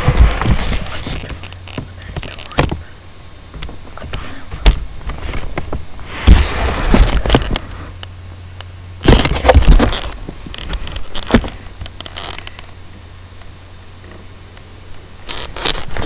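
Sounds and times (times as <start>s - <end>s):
phone microphone handling noise: 0.0s - 8.2s, 9.0s - 12.8s, 15.2s - 16.0s
low steady hum: 0.0s - 16.0s.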